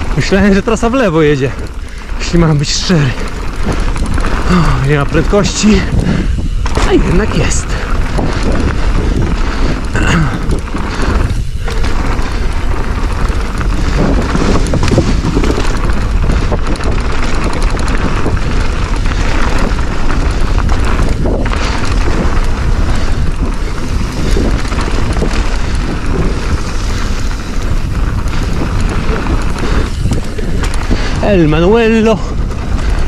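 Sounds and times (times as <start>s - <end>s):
bike tyres rolling over dirt: 0.0s - 33.0s
wind rushing over microphone: 0.0s - 33.0s.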